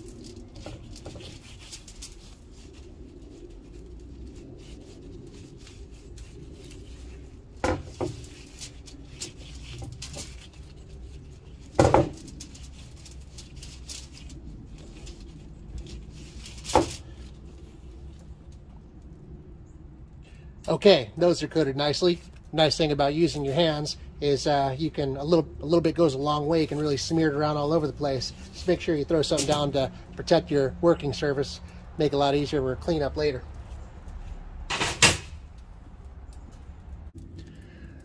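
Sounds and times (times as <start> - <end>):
rustling of foil: 0.0 - 18.7, 21.3 - 38.0
metal grill grate clanking: 34.7 - 35.4.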